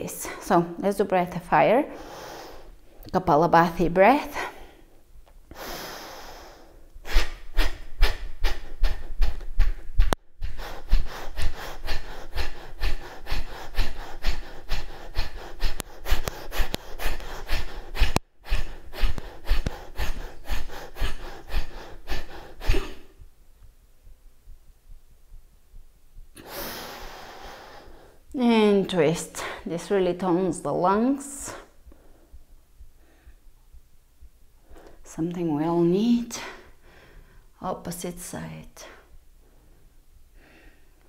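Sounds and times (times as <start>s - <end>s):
long inhale: 1.9s - 2.8s, 5.5s - 6.9s, 26.4s - 28.2s, 36.4s - 37.5s, 39.4s - 41.0s
forceful nasal exhalations: 5.5s - 23.3s, 26.3s - 28.2s.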